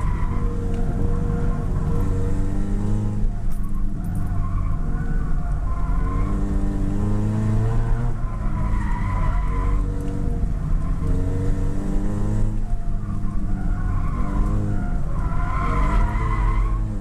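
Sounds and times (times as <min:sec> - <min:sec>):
race car engine revving: 0:00.0 - 0:03.4, 0:05.8 - 0:12.7.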